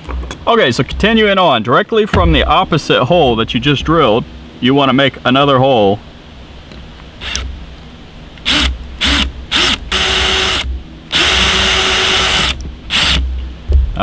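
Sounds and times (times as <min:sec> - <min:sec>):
electric drill drilling metal: 0:07.2 - 0:07.5, 0:08.4 - 0:13.2.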